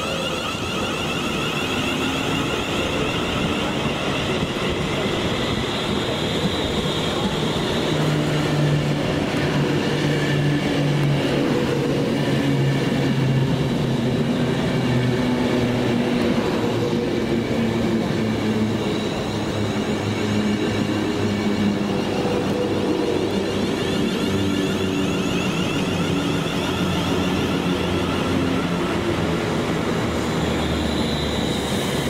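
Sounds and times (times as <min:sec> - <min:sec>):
high whine of train: 0:00.0 - 0:32.0
train running noise: 0:00.0 - 0:32.0.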